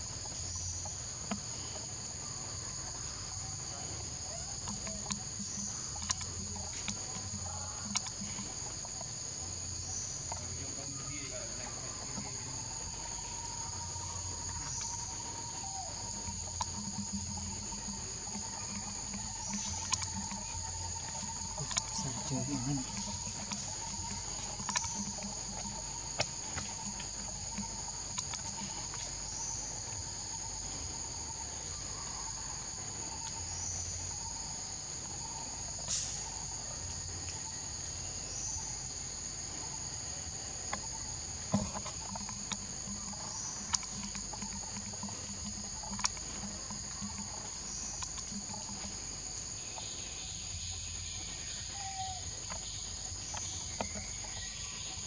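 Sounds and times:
insect chorus drone: 0.0s - 55.0s.

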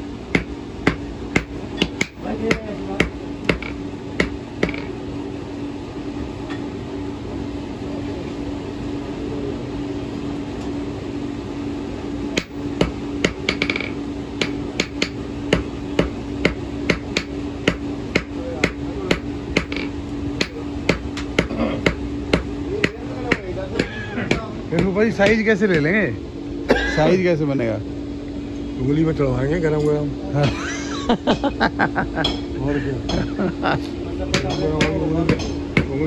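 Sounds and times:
steady low hum: 0.0s - 36.0s
hammer striking iron on anvil: 0.3s - 5.0s, 12.3s - 26.0s, 34.3s - 36.0s.

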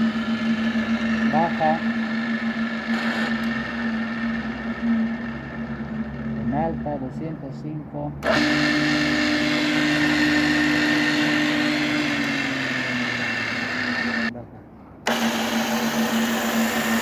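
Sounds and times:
drill motor hum and whine: 0.0s - 7.2s, 8.2s - 14.3s, 15.0s - 17.0s.

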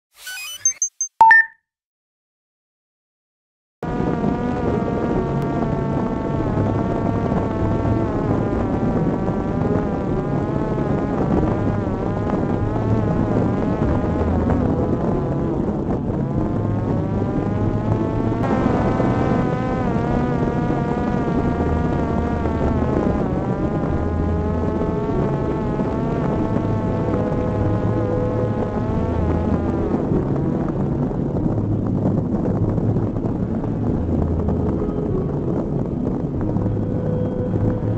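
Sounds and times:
drone propeller buzzing: 3.9s - 31.1s.

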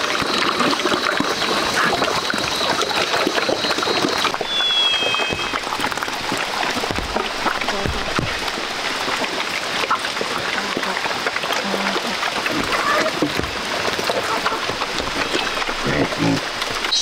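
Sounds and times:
pigs slurping and chewing: 0.0s - 17.0s
two-note whistle: 4.4s - 5.6s
thin high tone: 4.4s - 5.8s.

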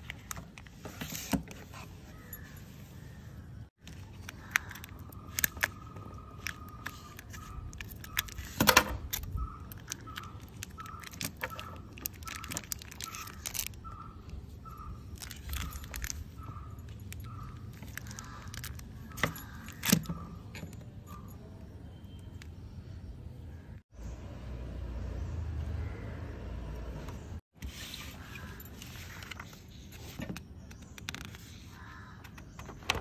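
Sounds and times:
plastic wrapping crinkling: 6.4s - 14.4s, 15.1s - 19.9s.

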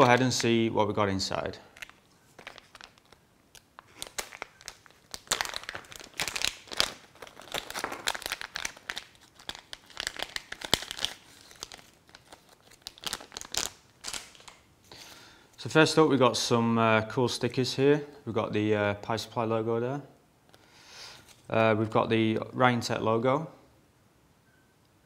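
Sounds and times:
plastic bags crinkling: 0.0s - 0.7s, 1.3s - 14.7s.

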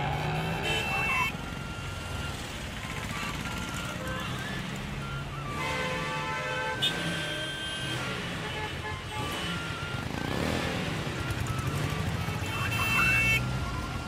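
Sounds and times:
vehicle engines running: 0.0s - 14.0s
car horn honks: 0.4s - 1.3s, 5.5s - 9.7s.

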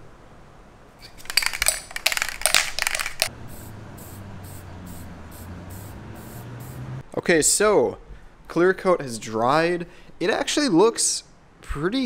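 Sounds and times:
spray can rattling: 1.0s - 6.4s
spray can hissing: 2.8s - 6.8s.

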